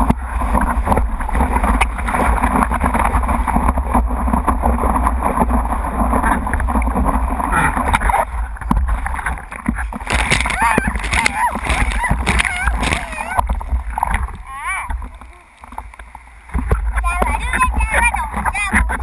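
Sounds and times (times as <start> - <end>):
water rushing against surfboard: 0.0 - 19.0
water splashes: 0.0 - 19.0.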